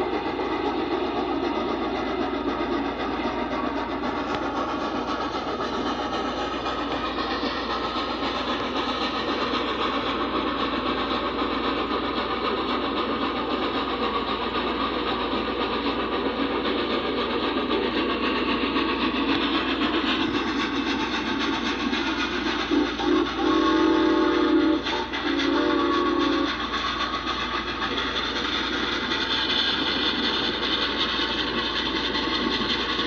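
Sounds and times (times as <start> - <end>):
steam locomotive running: 0.0 - 33.0
steam whistle blowing: 22.6 - 27.0.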